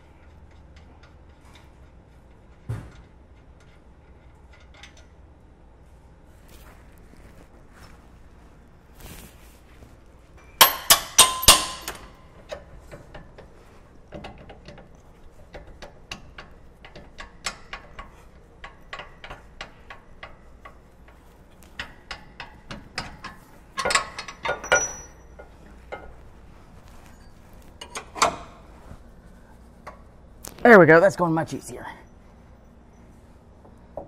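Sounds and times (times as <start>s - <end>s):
metallic clicking of hand tool: 10.6s - 12.1s.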